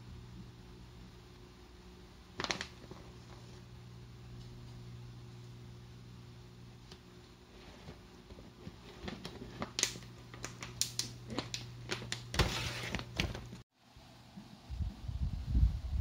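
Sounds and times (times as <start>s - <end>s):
steady low hum: 0.0s - 16.0s
plastic pouch crinkling: 2.4s - 3.4s.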